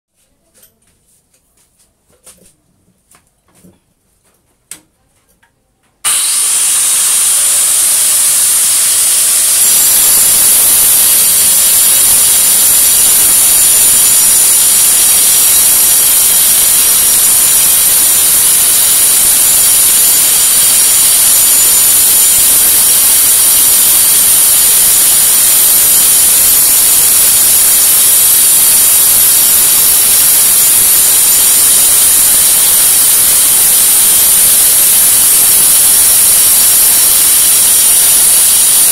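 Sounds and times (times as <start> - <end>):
power tool high whine: 6.1 - 38.9.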